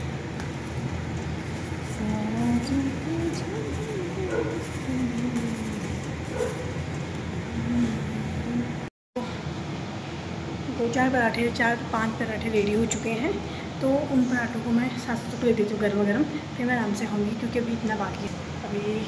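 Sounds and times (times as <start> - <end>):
steel spatula scraping: 0.0 - 6.9
flatbread cooking on griddle: 0.0 - 7.3
kitchen fan rushing: 0.0 - 19.0.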